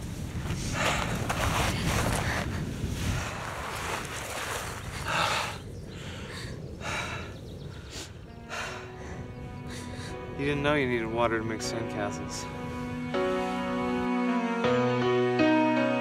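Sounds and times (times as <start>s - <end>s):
wind rumble on microphone: 0.0s - 13.7s
woman breathing heavily: 0.5s - 4.0s, 4.6s - 10.3s.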